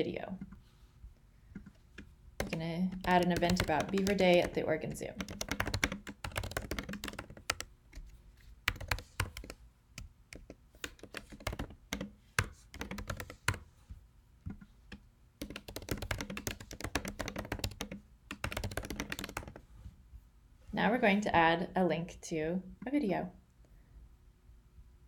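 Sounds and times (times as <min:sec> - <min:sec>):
typing on computer keyboard: 0:01.5 - 0:13.6, 0:14.5 - 0:19.6.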